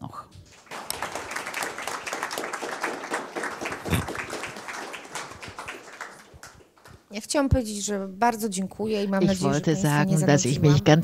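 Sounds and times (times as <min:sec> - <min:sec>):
audience applauding: 0:00.4 - 0:07.1.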